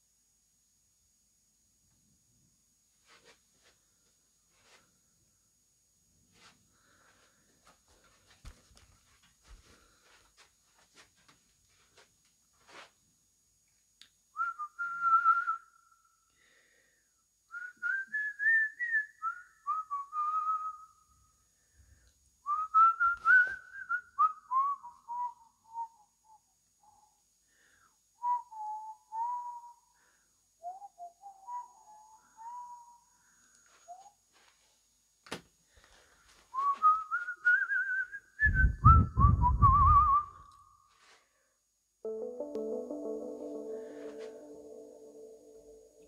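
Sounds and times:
person whistling a tune: 14.4 - 15.8, 17.5 - 20.9, 22.5 - 27.0, 28.2 - 29.9, 30.6 - 33.1, 36.5 - 40.5.

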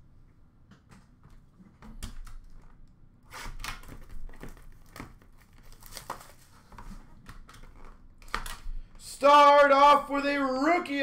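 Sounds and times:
plastic wrapping crinkling and tearing: 3.3 - 8.6.

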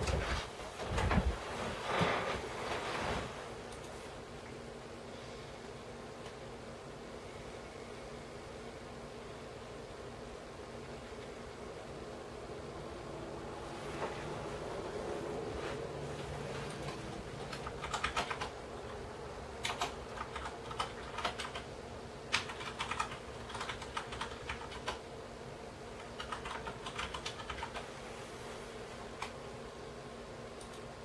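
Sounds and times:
steady low hum: 0.0 - 31.0
keyboard typing: 16.6 - 19.0, 19.6 - 21.7, 22.3 - 25.0, 26.0 - 27.9.

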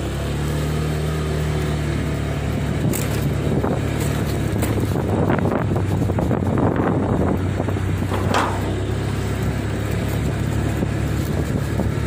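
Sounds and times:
large engine running: 0.0 - 12.0
wind buffeting microphone: 2.7 - 12.0.

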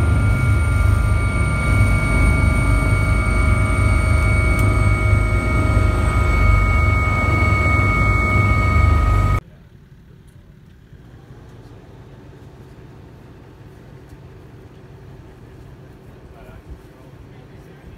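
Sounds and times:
high turbine whine: 0.0 - 9.4
helicopter rotor and engine rumble: 0.0 - 17.9
faint outdoor background: 9.4 - 17.9.

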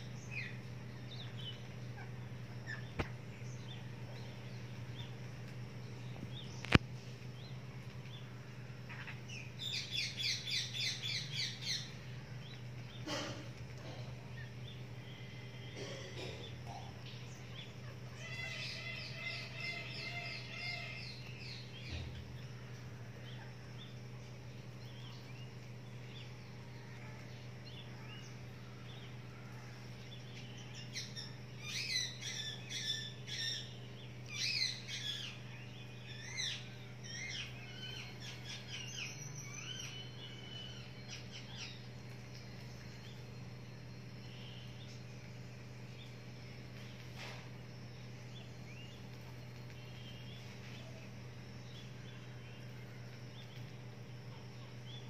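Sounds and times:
parakeets chirping: 0.0 - 5.4, 7.5 - 55.0
steady low hum: 0.0 - 55.0
parakeets screeching: 15.2 - 22.1, 30.7 - 35.4, 36.0 - 41.8.

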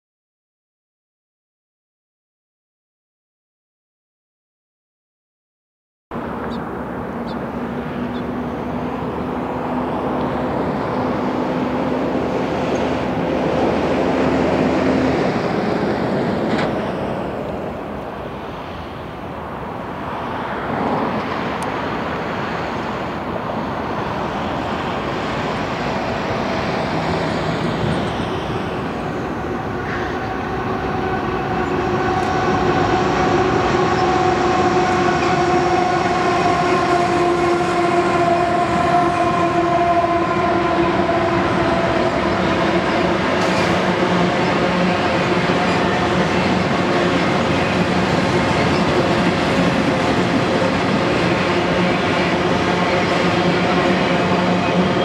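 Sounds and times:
freight train rumbling past: 6.1 - 55.0
train horn: 26.4 - 55.0.

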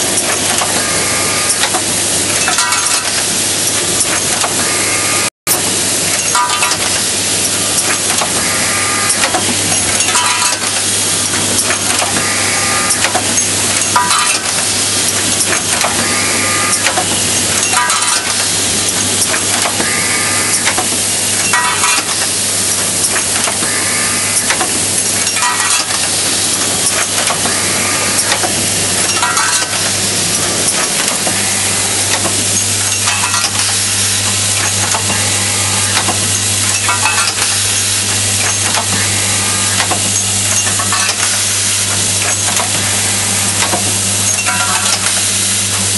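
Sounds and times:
machine cycle clattering stroke: 0.0 - 45.9
vibratory bowl feeder hum: 0.0 - 45.9
metallic clatter of parts: 1.5 - 4.6, 6.1 - 7.0, 9.1 - 12.2, 12.9 - 16.0, 16.8 - 19.9, 20.6 - 23.6, 24.4 - 27.5, 28.2 - 31.4, 32.1 - 34.0, 35.9 - 39.0, 39.8 - 41.5, 43.6 - 45.3.

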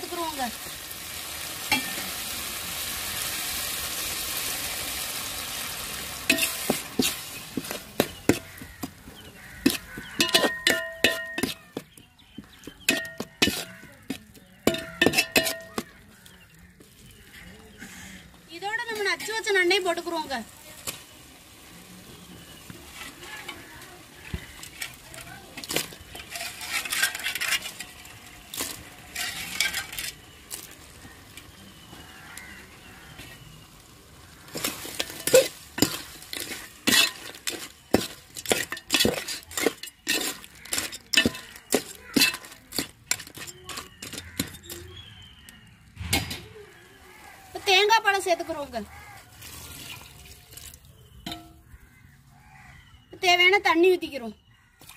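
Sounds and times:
food sizzling in a pan: 0.0 - 17.7, 18.4 - 44.4
spoon clinking and scraping pan: 1.6 - 2.2, 6.2 - 16.4, 22.8 - 32.5, 34.3 - 45.5, 51.1 - 51.8.

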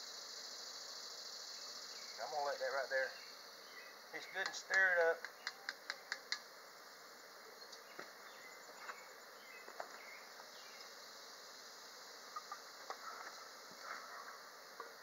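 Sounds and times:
insects buzzing: 0.0 - 15.0
faint ticks: 4.4 - 6.5.

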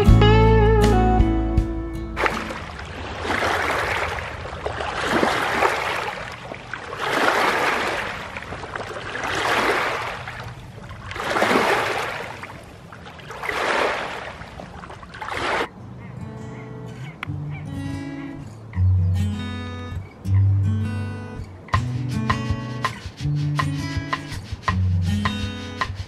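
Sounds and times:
small waves lapping on pebbles: 2.2 - 15.7.

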